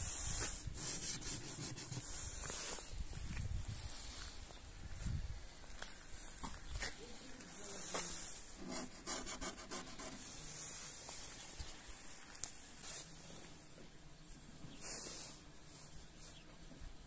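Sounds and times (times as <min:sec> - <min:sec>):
fingertips scratching frost on glass: 0:00.8 - 0:02.2.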